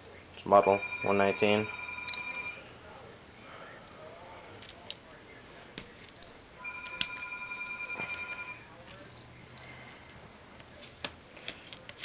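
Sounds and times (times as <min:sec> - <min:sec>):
phone ringing: 0:00.5 - 0:02.8, 0:06.6 - 0:08.7.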